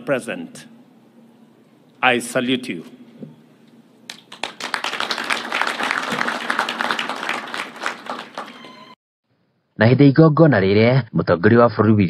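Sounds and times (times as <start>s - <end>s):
audience applauding: 4.1s - 9.0s.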